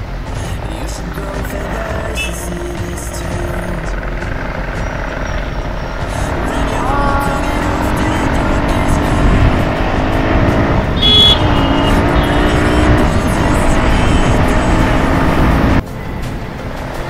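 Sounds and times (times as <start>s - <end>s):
motorcycle engine running: 0.0s - 17.0s
wind and road noise: 0.0s - 17.0s
short high-pitched tone: 11.0s - 12.8s.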